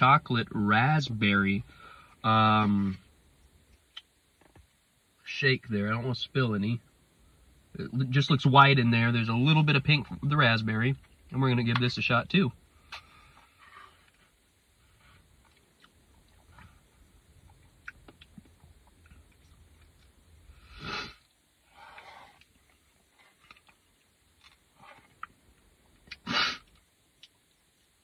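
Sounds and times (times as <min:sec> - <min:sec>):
short breath: 0:01.7 - 0:02.2
mouth and swallowing clicks: 0:17.4 - 0:20.2.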